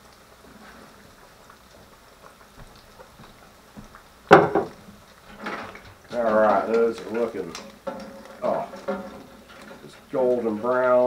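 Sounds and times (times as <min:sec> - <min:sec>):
fish frying in bubbling oil: 0:00.0 - 0:11.0
loud knock: 0:04.3 - 0:04.7.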